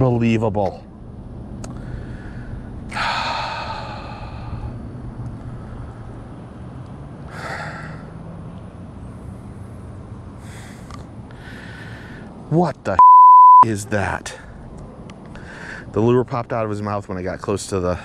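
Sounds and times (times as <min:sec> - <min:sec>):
steady low hum: 0:00.7 - 0:06.8.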